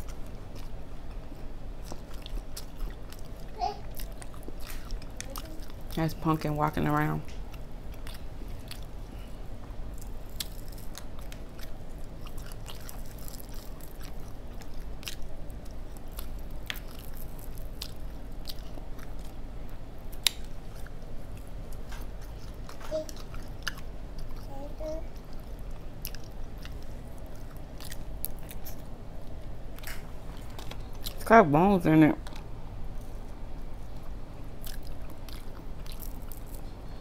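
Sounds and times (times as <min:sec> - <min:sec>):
close chewing: 0:00.0 - 0:06.3, 0:07.3 - 0:31.3, 0:32.2 - 0:37.0
crispy fish crackling: 0:00.0 - 0:24.5, 0:32.3 - 0:37.0
steady low hum: 0:00.0 - 0:37.0.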